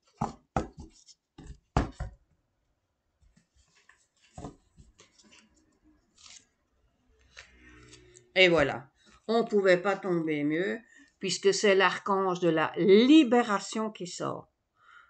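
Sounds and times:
cards rustling and tapping: 0:03.2 - 0:06.4.

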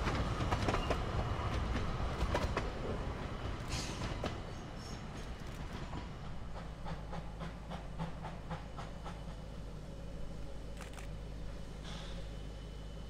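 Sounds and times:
steam train rumble: 0:00.0 - 0:13.0.

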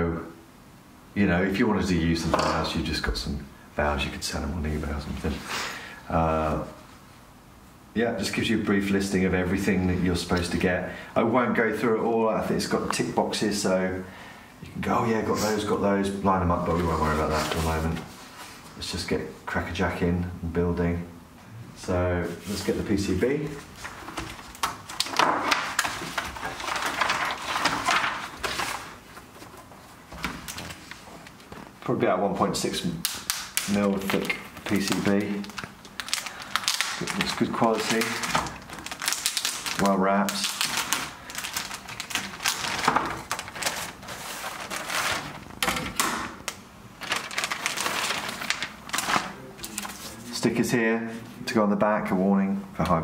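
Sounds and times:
plastic bag crinkling: 0:23.6 - 0:31.8, 0:32.9 - 0:50.4.

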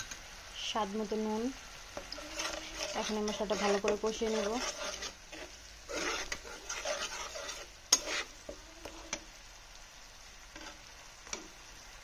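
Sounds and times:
paste sizzling in oil: 0:00.0 - 0:12.0
metal spatula scraping a pan: 0:01.9 - 0:09.3, 0:10.5 - 0:11.5.

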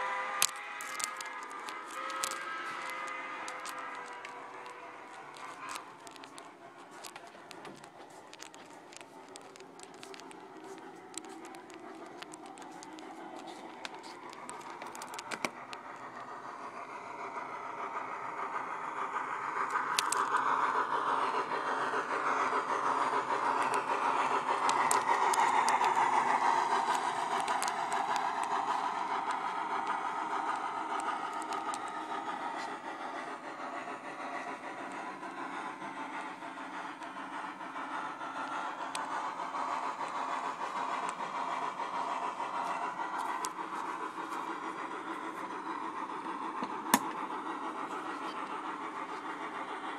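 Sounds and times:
model steam locomotive sound: 0:00.0 - 0:49.9
sharp clicks: 0:00.2 - 0:16.1.

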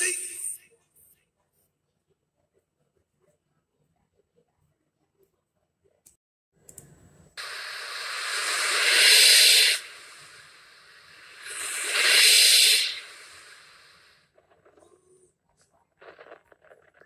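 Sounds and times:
loud hissing: 0:07.4 - 0:14.2.

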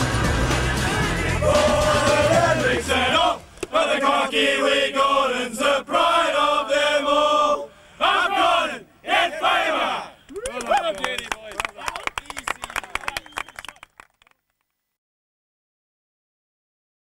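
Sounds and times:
men singing in unison: 0:00.5 - 0:07.7.

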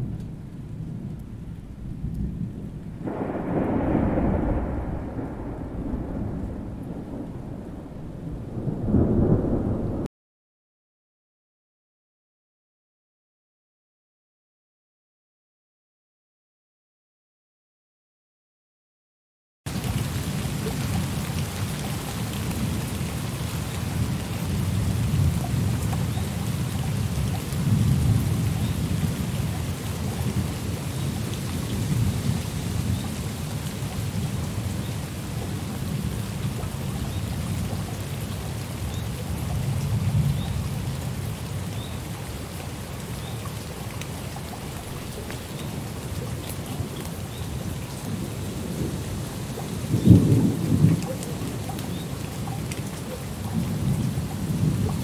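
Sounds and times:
rolling thunder: 0:00.0 - 0:10.1, 0:48.1 - 0:51.5
steady rain: 0:00.0 - 0:10.1, 0:19.7 - 0:55.0
sharp thunderclap: 0:01.7 - 0:10.1, 0:49.9 - 0:51.0.

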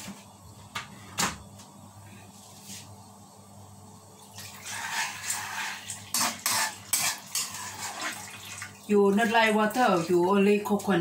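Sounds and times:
water pouring into a pan: 0:04.3 - 0:10.3.

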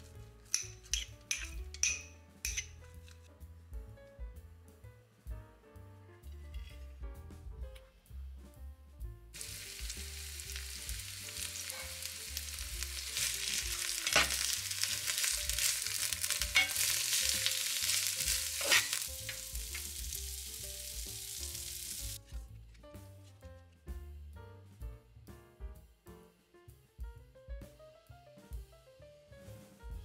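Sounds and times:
vegetables sizzling in oil: 0:09.4 - 0:22.2.

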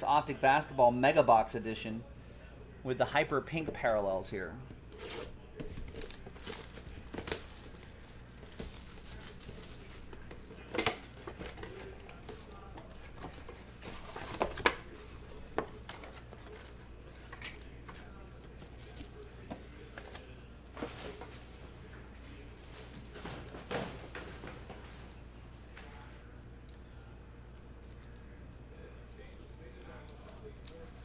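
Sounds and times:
wrappers crinkling and tearing: 0:05.0 - 0:21.5.

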